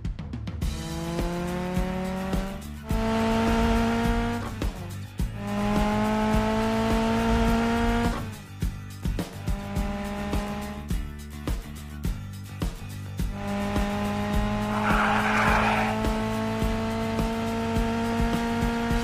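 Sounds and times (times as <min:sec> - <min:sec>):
background music with beat: 0:00.0 - 0:16.2
cartoon engine revving: 0:13.4 - 0:16.5.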